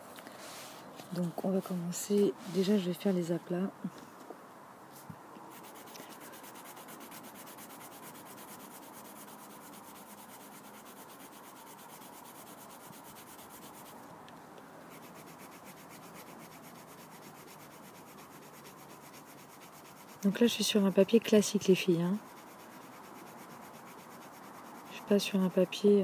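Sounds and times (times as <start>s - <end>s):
coloured pencil scratching on paper: 5.5s - 14.0s, 14.9s - 25.7s.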